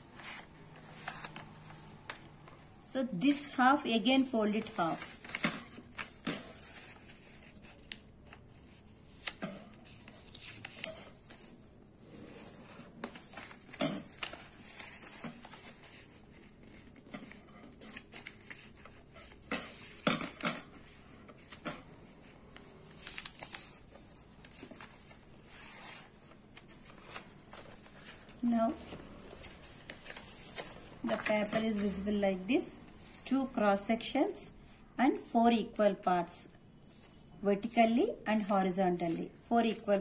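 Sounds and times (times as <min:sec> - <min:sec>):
paper rustling: 0:00.1 - 0:02.7, 0:04.2 - 0:32.0.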